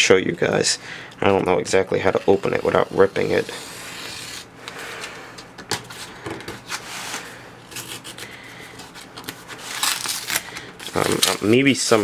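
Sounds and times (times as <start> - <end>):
tape scratching on cardboard envelope: 2.5 - 4.5.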